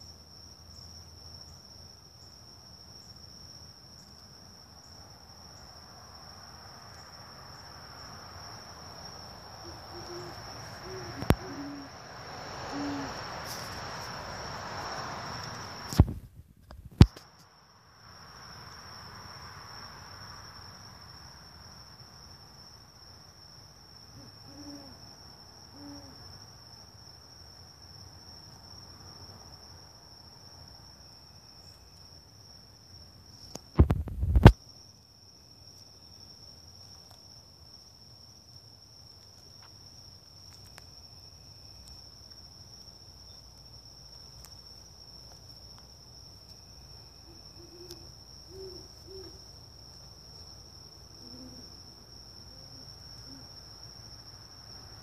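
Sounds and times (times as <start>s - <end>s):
high-pitched insect trill: 0.0s - 16.0s, 17.2s - 55.0s
owl hooting faintly: 9.6s - 13.8s, 24.1s - 25.1s, 25.7s - 26.3s, 47.2s - 49.4s, 51.2s - 51.8s, 52.4s - 53.6s
loud bumps: 33.8s - 34.5s.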